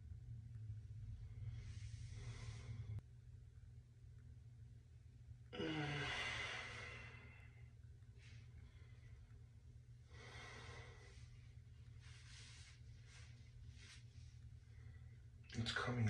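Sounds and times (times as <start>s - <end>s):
man sighing: 5.5s - 7.4s
man breathing out: 5.6s - 7.7s.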